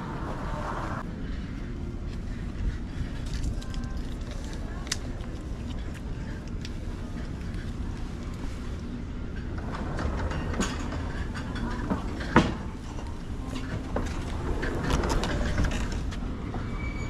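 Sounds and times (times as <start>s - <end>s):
steady low rumble: 0.0s - 16.6s
plastic menu pages flipping: 3.1s - 6.8s.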